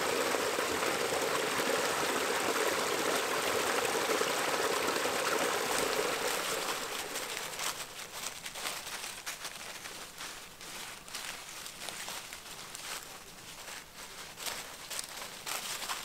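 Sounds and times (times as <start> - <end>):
water splashing into a pool: 0.0 - 7.8
dry leaves crackling underfoot: 6.0 - 16.0.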